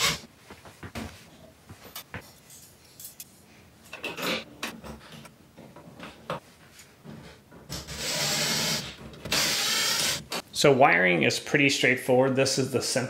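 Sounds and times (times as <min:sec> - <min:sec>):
cordless drill driving screw: 0:07.9 - 0:10.4.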